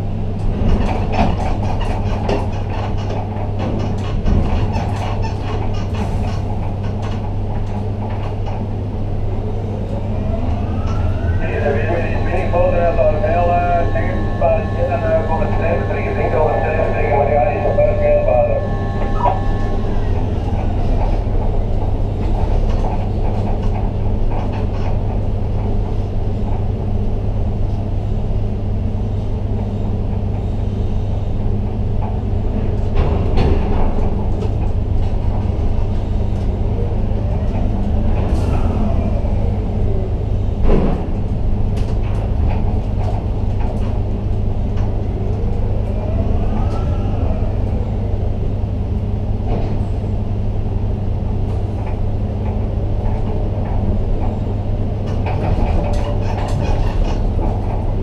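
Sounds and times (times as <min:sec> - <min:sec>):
crane machinery hum: 0:00.0 - 0:58.0.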